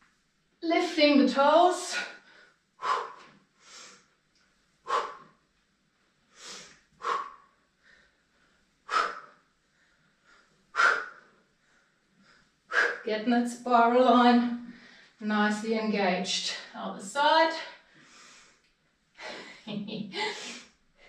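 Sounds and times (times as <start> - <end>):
person breathing hard: 2.0 - 4.1, 4.8 - 5.4, 6.3 - 13.1, 19.2 - 21.0.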